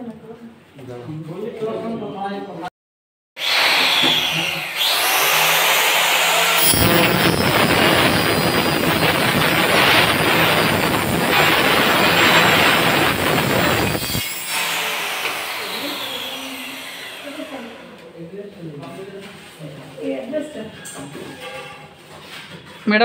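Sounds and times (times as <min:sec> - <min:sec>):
kitchen chimney blower whooshing: 0:06.5 - 0:14.2.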